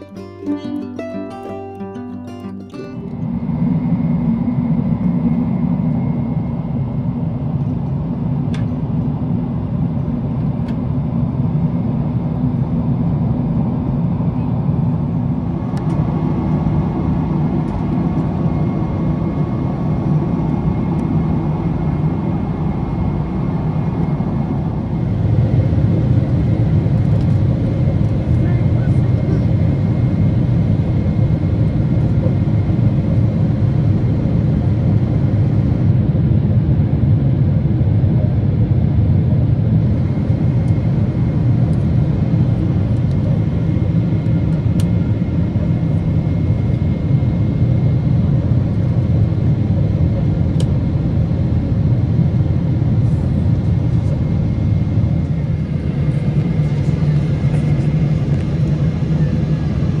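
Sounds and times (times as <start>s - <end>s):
vehicle rumble in motion: 52.3s - 60.0s.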